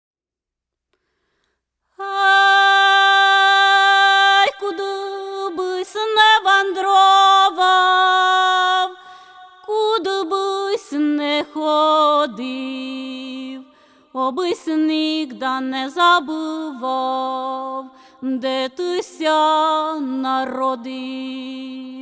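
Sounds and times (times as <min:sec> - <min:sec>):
singer breathing: 0:01.0 - 0:01.9, 0:09.0 - 0:09.6, 0:13.7 - 0:14.2, 0:17.9 - 0:18.2
woman singing a cappella: 0:02.0 - 0:22.0.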